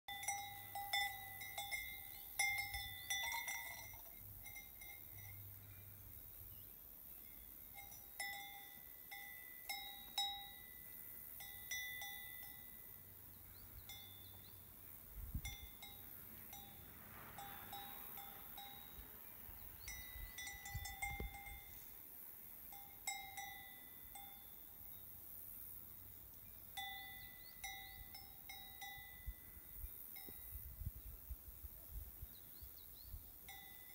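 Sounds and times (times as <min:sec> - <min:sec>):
cowbells clanking: 0:00.1 - 0:05.7, 0:07.5 - 0:13.2, 0:13.8 - 0:14.5, 0:15.4 - 0:19.2, 0:19.9 - 0:21.9, 0:22.7 - 0:24.8, 0:26.7 - 0:29.5, 0:33.4 - 0:33.9.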